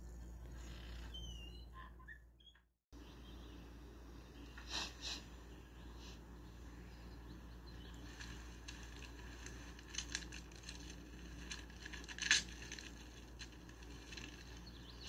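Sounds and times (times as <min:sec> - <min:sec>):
plastic wrapper crinkling: 0:08.0 - 0:15.0
wrapper ripping: 0:08.1 - 0:15.0.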